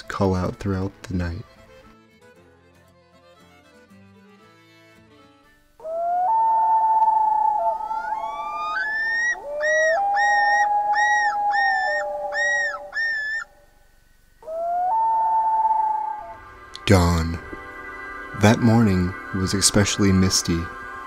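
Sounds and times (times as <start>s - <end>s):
loons wailing: 5.8s - 21.0s.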